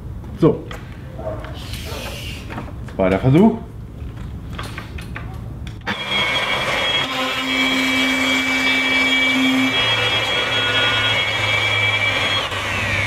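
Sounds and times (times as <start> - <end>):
router whining while cutting wood: 5.9 - 13.0.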